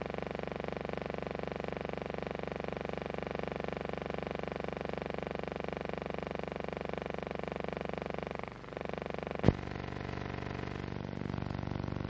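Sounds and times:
steady pulsing hum: 0.0 - 12.0.

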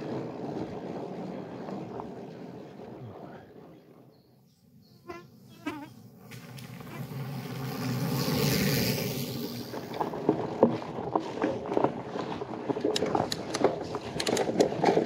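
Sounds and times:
insects buzzing: 4.8 - 9.8.

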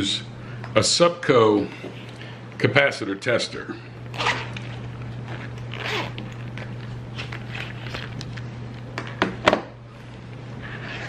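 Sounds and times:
zipper being pulled open: 4.1 - 8.2, 10.6 - 11.0.

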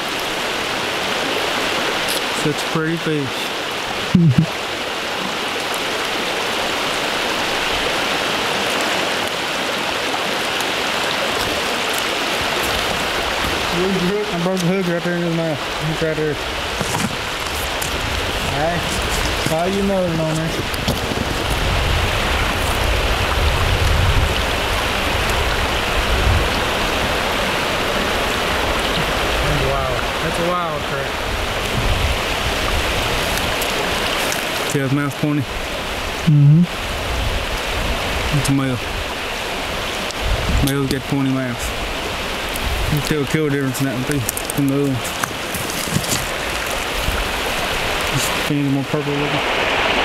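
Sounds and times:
creek water rushing over rocks: 0.0 - 50.0.

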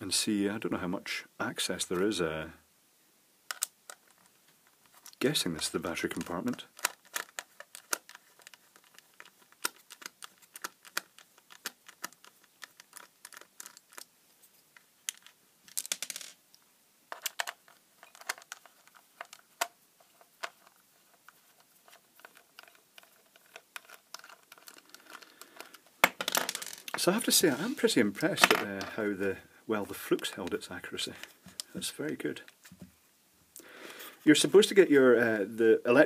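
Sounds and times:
screwdriver clicking and scraping: 6.1 - 14.1, 17.1 - 25.8.

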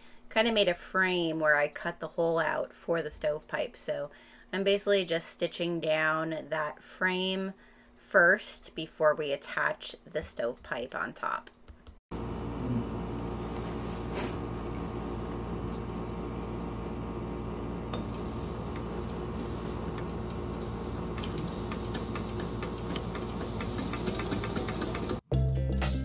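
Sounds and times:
air conditioner humming: 12.2 - 25.2.

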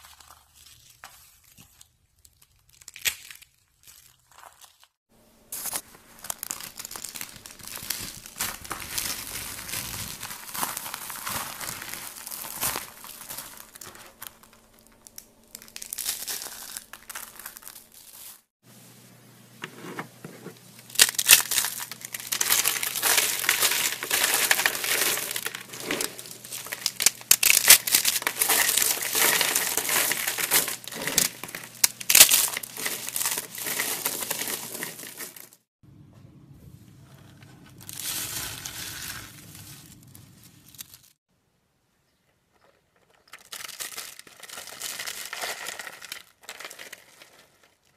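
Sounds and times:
soap shavings crackling: 20.8 - 35.7.

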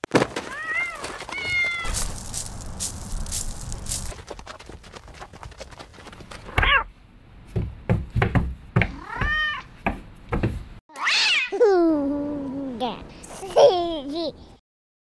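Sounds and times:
cat meowing: 0.5 - 2.0, 6.6 - 6.9, 8.9 - 9.7.

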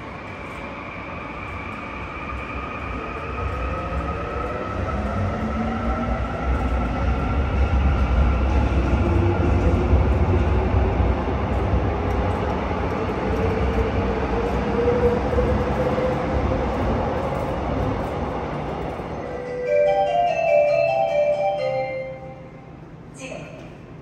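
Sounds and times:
electric train rumble and whine: 0.0 - 24.0
station chime: 19.4 - 22.6.

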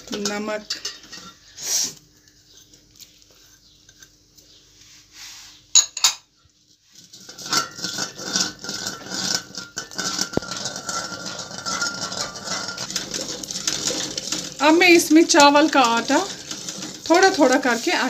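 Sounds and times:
spoon stirring in steel pot: 0.0 - 1.6, 5.8 - 18.0.

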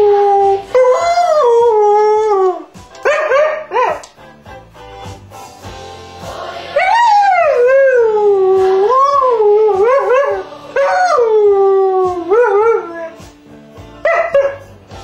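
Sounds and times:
dog howling: 0.0 - 4.0, 6.8 - 13.2
music: 0.0 - 15.0.

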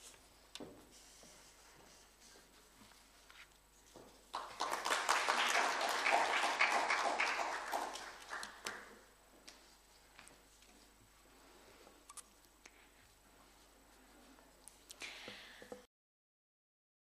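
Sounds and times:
audience applauding: 4.3 - 9.0.

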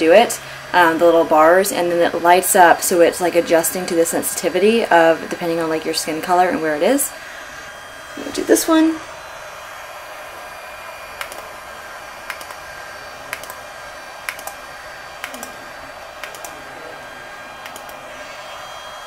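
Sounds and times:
cooling fan running: 0.0 - 19.0
sharp device clicks: 11.2 - 11.5, 12.2 - 12.6, 13.3 - 13.6, 14.2 - 14.6, 15.2 - 15.6, 16.2 - 16.6, 17.6 - 18.0.

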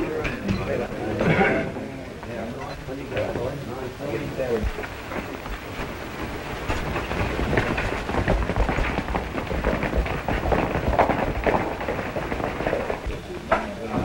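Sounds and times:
horse hoofbeats: 4.5 - 13.4.

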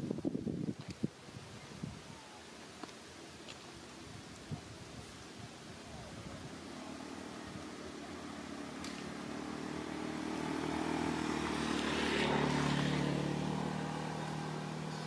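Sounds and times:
vehicle passing by: 6.1 - 15.0.

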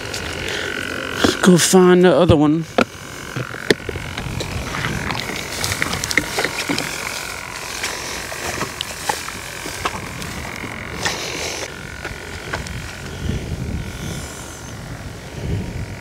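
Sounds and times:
steady high drone: 0.0 - 16.0
footsteps through tall grass: 2.6 - 14.4.

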